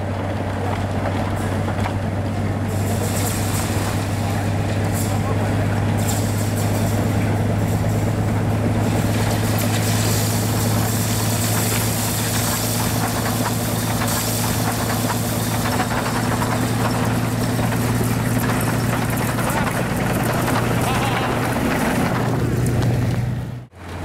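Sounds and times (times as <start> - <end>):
locomotive engine drone: 0.0 - 24.0.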